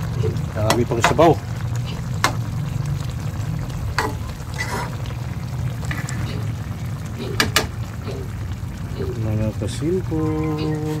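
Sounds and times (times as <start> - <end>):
sauce bubbling and sizzling: 0.0 - 11.0
spatula clacking against pan: 7.3 - 7.7.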